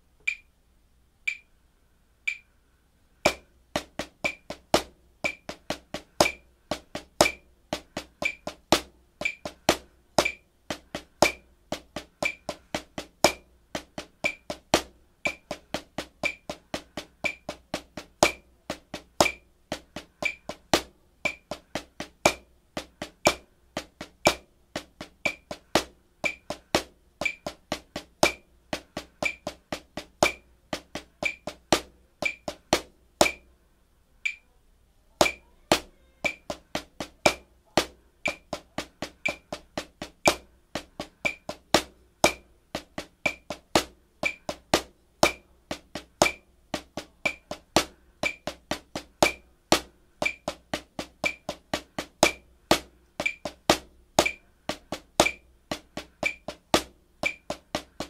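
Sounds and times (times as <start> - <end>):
metronome clicking: 0.2 - 0.5, 1.2 - 1.5, 2.3 - 2.5, 5.2 - 5.6, 8.2 - 8.6, 9.2 - 10.5, 12.2 - 12.6, 14.2 - 14.6, 15.2 - 16.6, 17.2 - 17.6, 20.2 - 20.6, 21.2 - 21.6, 25.2 - 25.6, 26.2 - 26.6, 27.2 - 28.4, 29.2 - 29.6, 31.2 - 33.5, 34.2 - 34.5, 35.2 - 37.4, 38.2 - 38.6, 39.2 - 39.6, 41.2 - 41.6, 43.2 - 43.6, 44.2 - 44.6, 50.2 - 50.6, 51.2 - 51.6, 53.2 - 53.6, 56.2 - 56.6, 57.2 - 57.6
snare drum solo: 3.3 - 33.5, 35.2 - 58.0.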